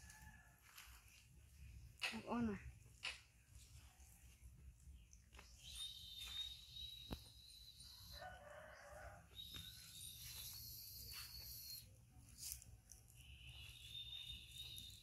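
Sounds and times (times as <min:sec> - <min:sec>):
distant rooster crowing: 0:07.8 - 0:10.4.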